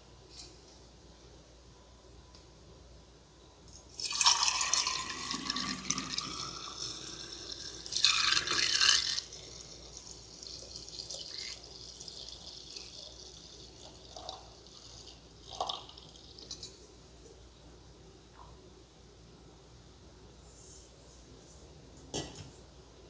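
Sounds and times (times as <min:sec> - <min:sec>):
liquid pouring into a container: 0:04.0 - 0:16.7
liquid dripping: 0:04.0 - 0:17.3.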